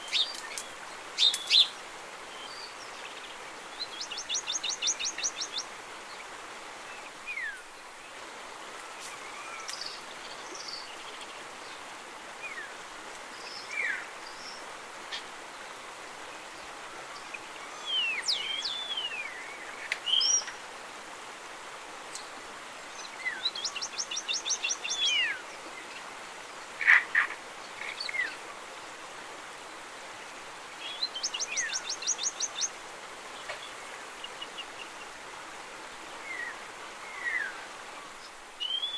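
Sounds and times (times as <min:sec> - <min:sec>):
steady background hiss: 0:00.0 - 0:38.9
songbirds whistling and chirping: 0:38.6 - 0:38.9.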